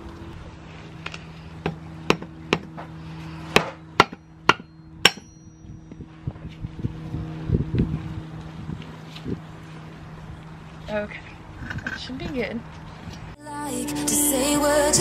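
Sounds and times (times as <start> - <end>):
hammer tapping on metal: 3.6 - 5.5.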